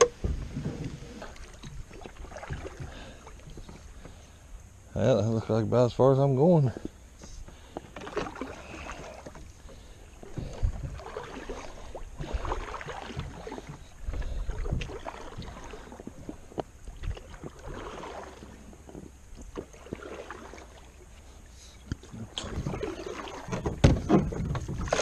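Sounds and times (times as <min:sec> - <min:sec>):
kayak paddle splashing in water: 0:00.0 - 0:04.2, 0:07.5 - 0:25.0
paddle knocks: 0:00.0 - 0:04.2, 0:21.9 - 0:25.0.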